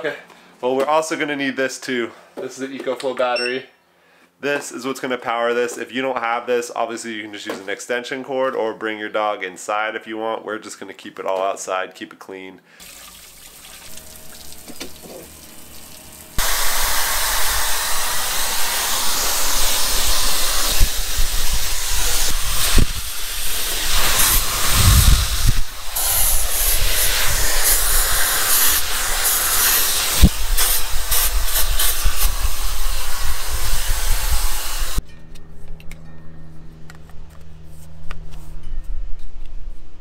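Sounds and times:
hair dryer blowing air: 0:16.4 - 0:35.0.

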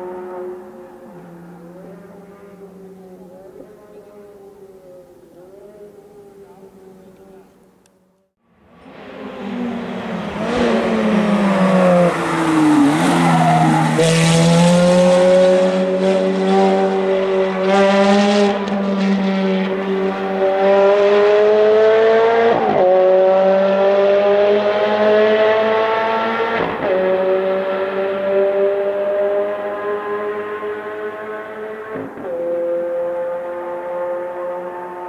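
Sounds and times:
sports car engine revving: 0:09.3 - 0:35.0.

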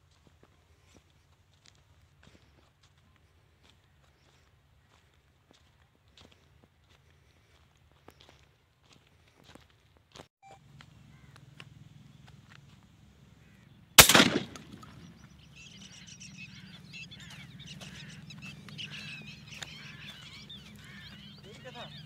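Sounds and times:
birds chirping: 0:10.6 - 0:22.0
shotgun shot: 0:14.0 - 0:15.2.

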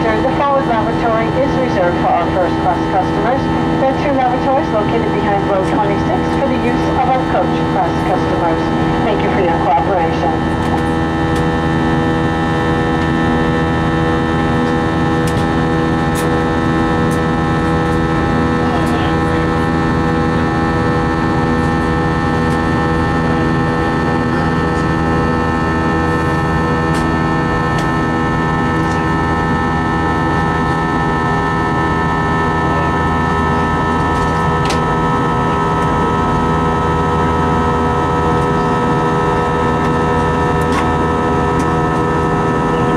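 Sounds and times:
jet engine roar with buzzsaw drone: 0:00.0 - 0:42.9.

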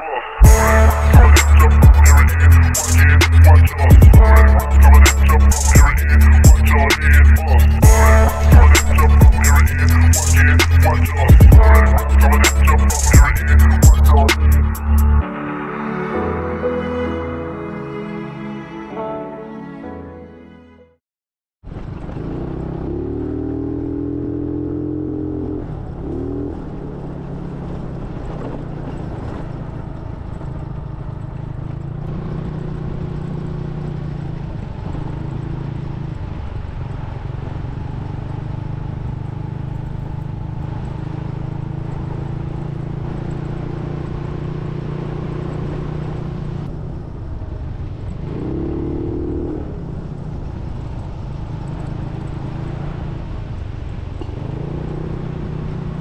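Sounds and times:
high whine: 0:00.0 - 0:18.1
engine running steadily: 0:00.4 - 0:15.2, 0:21.7 - 0:56.0.

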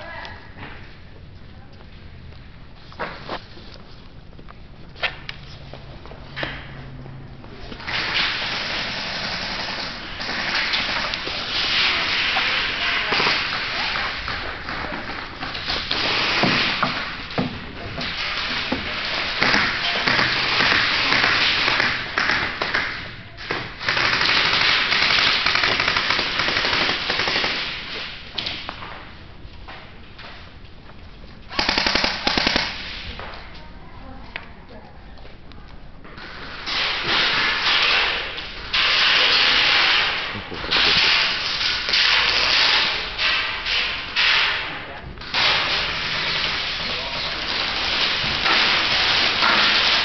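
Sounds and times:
airsoft guns firing automatic: 0:07.8 - 0:17.3, 0:18.0 - 0:28.1, 0:31.5 - 0:33.0, 0:36.2 - 0:50.0.

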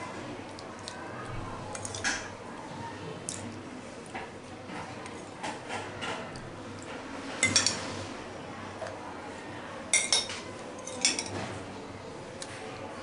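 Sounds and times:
spoon clinking against bowl: 0:09.9 - 0:11.3.

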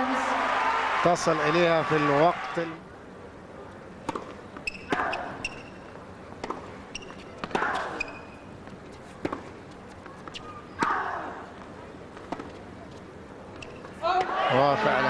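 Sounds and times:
rackets hitting tennis ball: 0:04.0 - 0:12.8, 0:13.5 - 0:14.5
shoes squeaking on court: 0:04.0 - 0:14.3.

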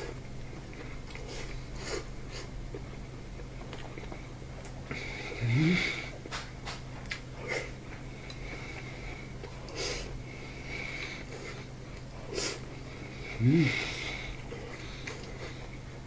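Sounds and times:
person chewing: 0:00.0 - 0:16.0
person humming mm: 0:05.3 - 0:06.2, 0:13.3 - 0:14.2
breathing through the nose: 0:07.4 - 0:15.8.

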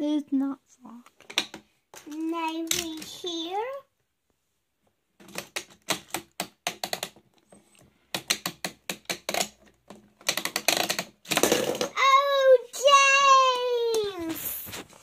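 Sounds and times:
plastic toy clicking and rattling: 0:01.2 - 0:03.3, 0:08.1 - 0:12.0
child whining: 0:12.0 - 0:14.7.

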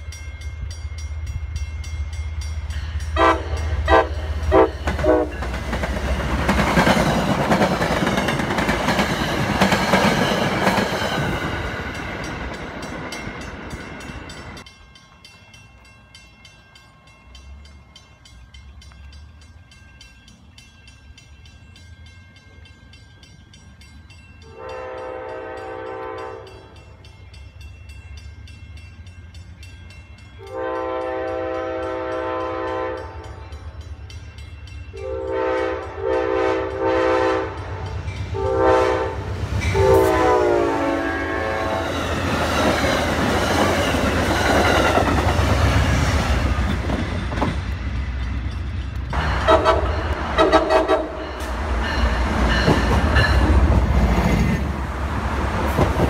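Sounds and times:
low train rumble: 0:00.0 - 0:56.0
train coaches rumbling and clattering: 0:00.0 - 0:56.0
locomotive air horn blasts: 0:03.2 - 0:05.4, 0:24.5 - 0:26.7, 0:30.4 - 0:33.2, 0:35.0 - 0:42.0, 0:49.3 - 0:51.5.

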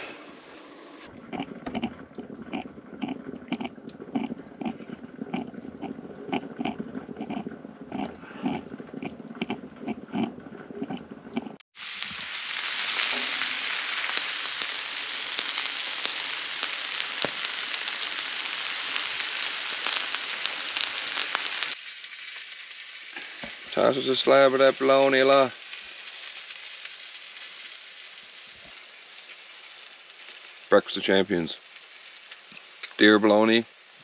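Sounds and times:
coffee percolator gurgling: 0:01.1 - 0:11.6
meat sizzling on foil: 0:11.8 - 0:34.0.

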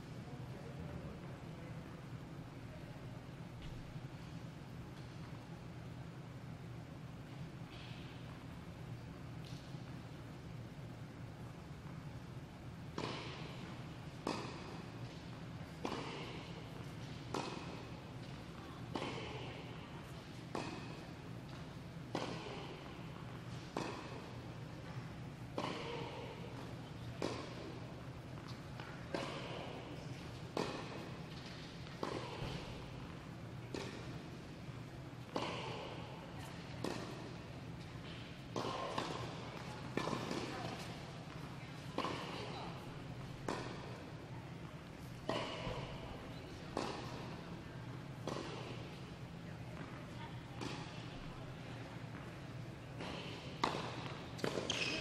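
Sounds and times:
steady low hum: 0:00.0 - 0:54.7
tennis balls struck by rackets: 0:12.8 - 0:55.0.

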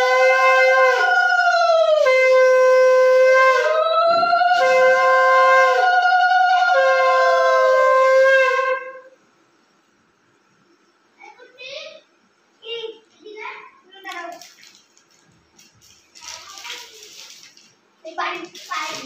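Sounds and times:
conch shells blown: 0:00.0 - 0:09.4.

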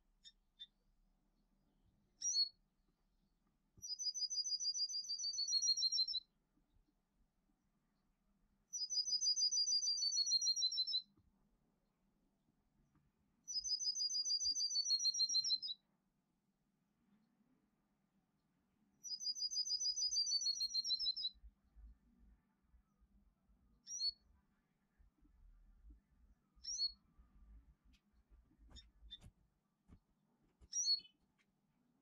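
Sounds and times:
bird chirp: 0:00.2 - 0:00.8, 0:02.2 - 0:02.6, 0:03.8 - 0:06.3, 0:08.7 - 0:11.1, 0:13.5 - 0:15.8, 0:19.0 - 0:21.5, 0:23.8 - 0:25.1, 0:25.8 - 0:29.3, 0:30.6 - 0:31.2.

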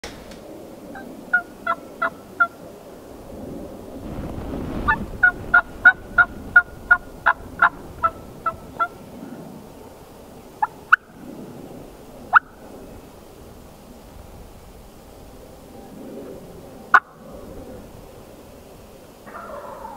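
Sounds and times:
turkey yelping: 0:00.9 - 0:02.6, 0:04.9 - 0:09.0, 0:19.3 - 0:19.9.

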